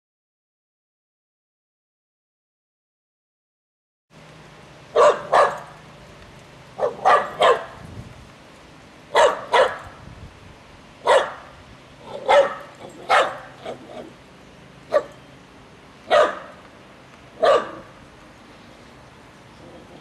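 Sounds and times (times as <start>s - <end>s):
small dog barking: 4.9s - 5.7s, 6.8s - 7.8s, 9.1s - 9.9s, 11.0s - 14.1s, 14.9s - 15.2s, 16.1s - 16.6s, 17.4s - 17.9s.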